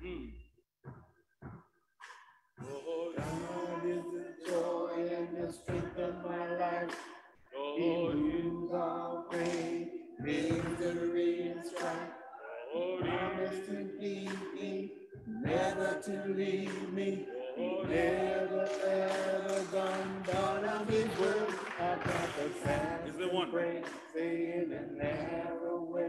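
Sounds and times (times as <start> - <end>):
person singing unaccompanied: 2.6 - 7.0, 7.6 - 26.0.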